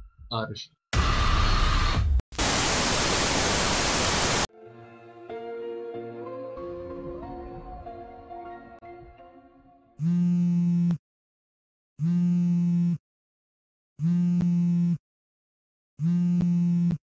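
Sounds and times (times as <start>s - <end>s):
phone vibrating against table: 10.0s - 11.0s, 12.0s - 13.0s, 14.0s - 15.0s, 16.0s - 17.0s.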